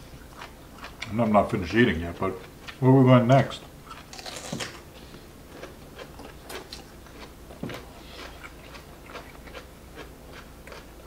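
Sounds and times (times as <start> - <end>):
chewing mouth sounds: 0.0 - 1.2, 3.7 - 11.0.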